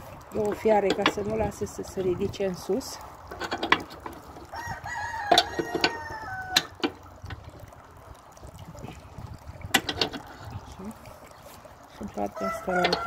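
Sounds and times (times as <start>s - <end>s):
rooster crowing: 4.5s - 6.7s, 12.4s - 13.0s.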